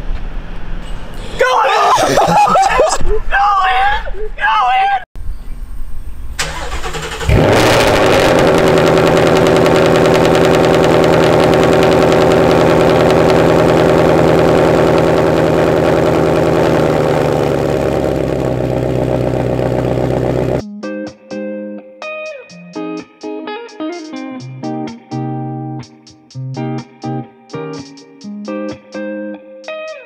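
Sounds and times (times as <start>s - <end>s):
car engine idling: 6.4s - 20.6s
car engine starting: 6.4s - 20.6s.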